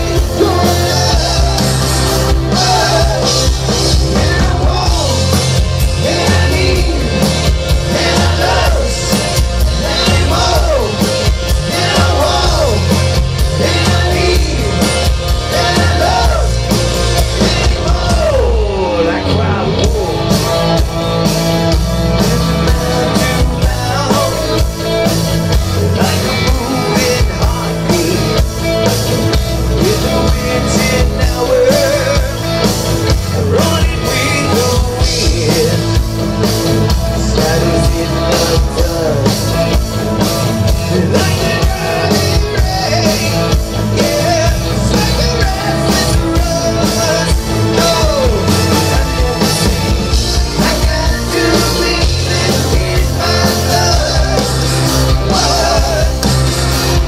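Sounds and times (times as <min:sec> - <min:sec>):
bass guitar: 0:00.0 - 0:57.0
drum kit: 0:00.0 - 0:57.0
electric guitar: 0:00.0 - 0:57.0.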